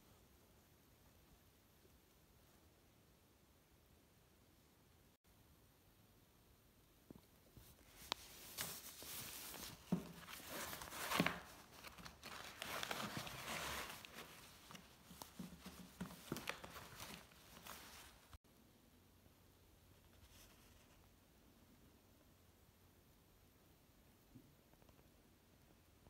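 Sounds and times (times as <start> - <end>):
paper and plastic pouch rustling: 7.6 - 18.4.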